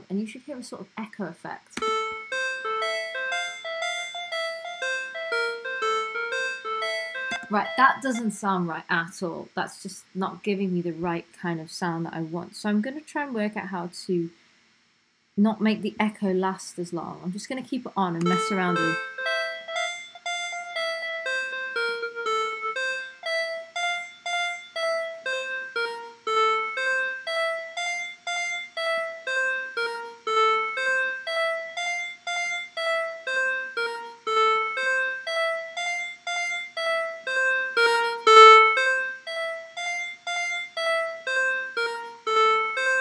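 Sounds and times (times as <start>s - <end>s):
synth keyboard riff with echo: 1.8s - 8.2s, 18.2s - 43.0s.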